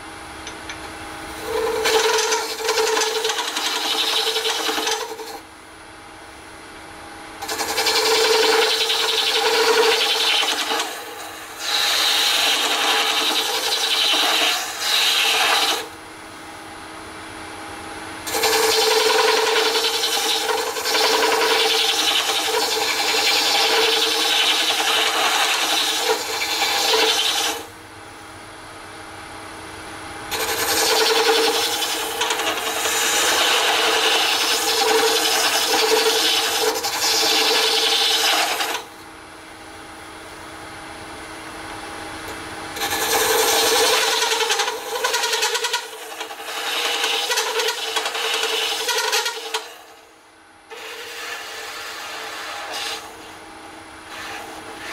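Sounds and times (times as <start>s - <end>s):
faint lathe hum: 0.0s - 54.9s
lathe tool scraping resin: 0.4s - 5.4s, 7.4s - 15.9s, 18.3s - 27.7s, 30.3s - 38.9s, 42.8s - 50.0s, 50.7s - 53.3s, 54.0s - 54.9s.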